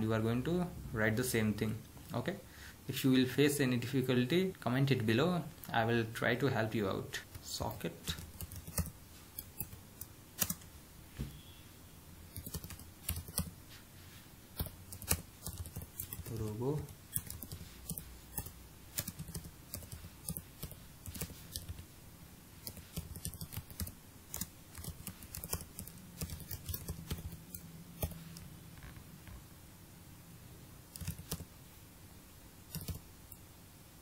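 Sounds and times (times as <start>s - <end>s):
faint low hum: 0.0s - 34.0s
typing on keyboard: 8.0s - 9.8s, 10.4s - 10.7s, 12.3s - 13.5s, 14.6s - 21.8s, 22.6s - 28.4s, 31.0s - 31.5s, 32.7s - 33.0s.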